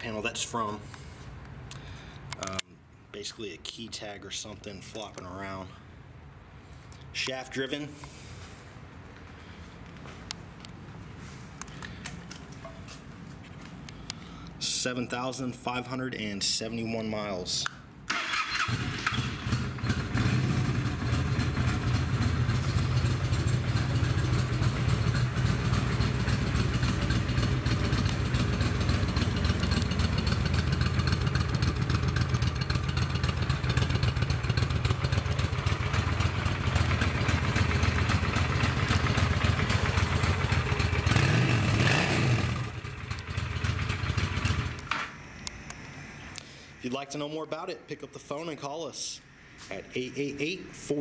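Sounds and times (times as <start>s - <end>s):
motorcycle engine idling: 18.8s - 45.0s.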